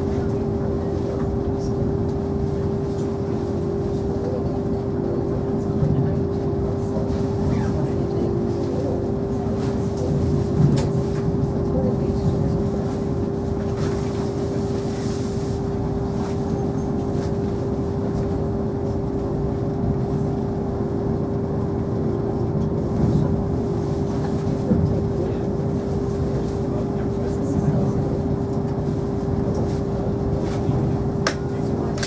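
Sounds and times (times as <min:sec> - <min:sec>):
train cabin running hum: 0:00.0 - 0:32.0.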